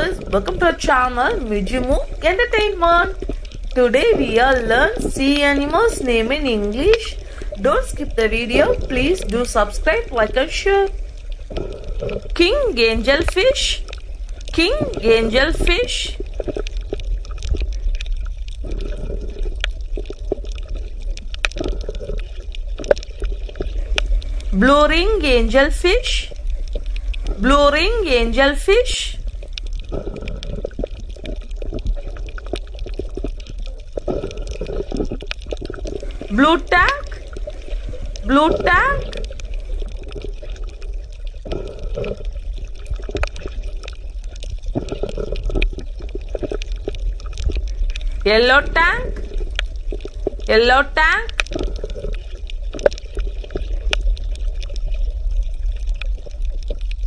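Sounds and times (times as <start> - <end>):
crackling clicks: 0.0 - 28.0, 28.6 - 57.0
bubbling: 0.0 - 57.0
low underwater rumble: 0.0 - 57.0.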